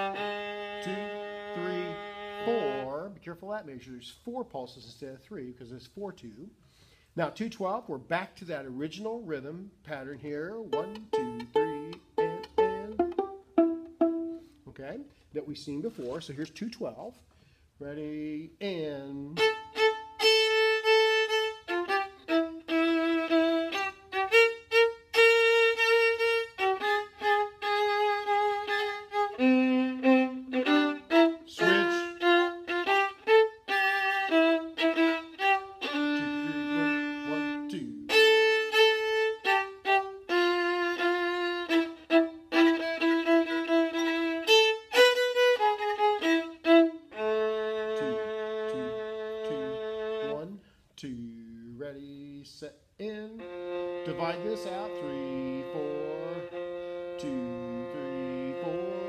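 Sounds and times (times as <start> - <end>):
solo viola bowing: 0.0 - 3.2, 10.6 - 14.6, 18.7 - 50.6, 53.0 - 59.0.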